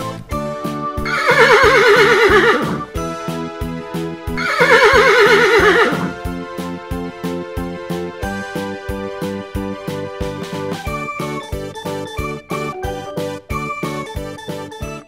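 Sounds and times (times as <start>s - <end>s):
light background music: 0.0s - 15.0s
horse whinnying: 1.0s - 3.0s, 4.4s - 6.2s.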